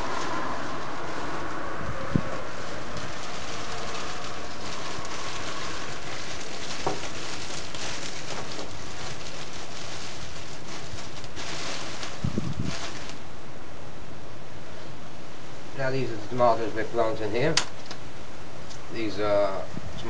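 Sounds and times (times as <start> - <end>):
plastic sheeting rustling: 0.0 - 13.4
background hiss: 0.0 - 20.0.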